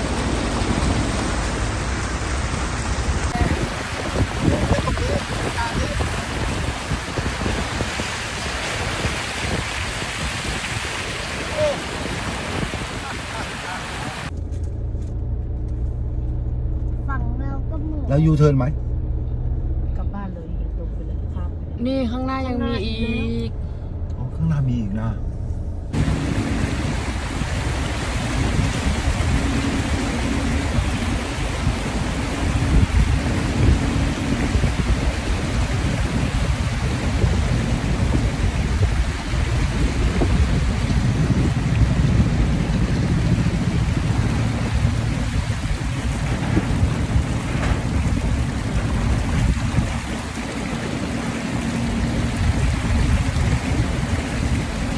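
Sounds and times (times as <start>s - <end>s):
tyres churning water: 0.0s - 14.3s, 25.9s - 54.9s.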